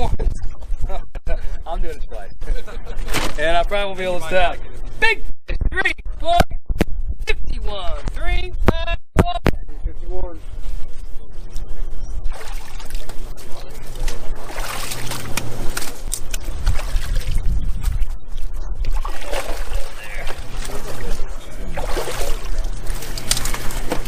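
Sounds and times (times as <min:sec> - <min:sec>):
water splashing in plastic tub: 0:12.3 - 0:13.2, 0:13.8 - 0:18.0, 0:18.8 - 0:24.0.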